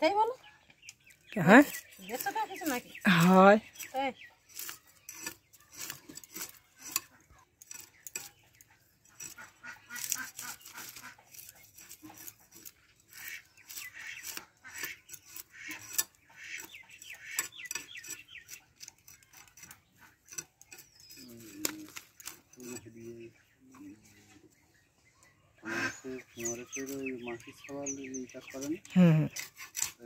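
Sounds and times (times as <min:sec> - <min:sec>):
fish scales scraped on blade: 0:01.7 - 0:23.0.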